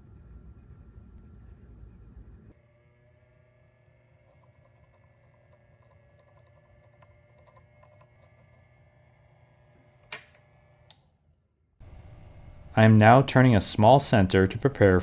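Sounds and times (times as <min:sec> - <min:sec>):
lathe humming: 0:02.4 - 0:11.0, 0:11.8 - 0:13.2.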